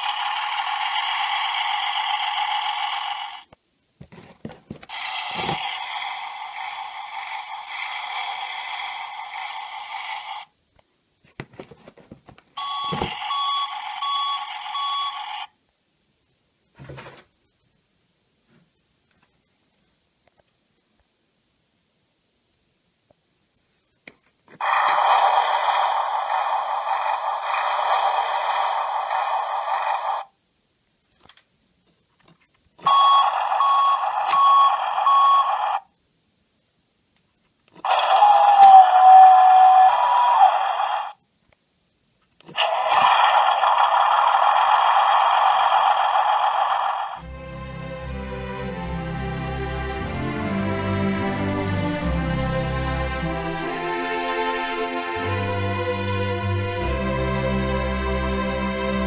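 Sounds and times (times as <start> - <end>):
toy electronic sound effects: 0.0 - 3.5, 4.9 - 10.5, 12.6 - 15.5, 24.6 - 30.3, 32.8 - 35.9, 37.8 - 41.2, 42.5 - 47.2
plastic handling noise: 4.0 - 5.6, 11.2 - 13.2
electronic beeps: 12.6 - 15.3, 32.9 - 35.6.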